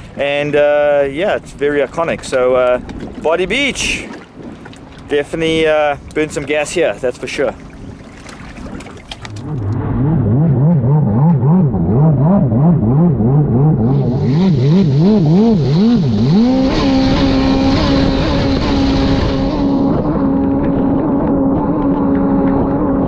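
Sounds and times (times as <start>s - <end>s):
wind: 0.0s - 23.0s
jet ski engine revving: 8.6s - 23.0s.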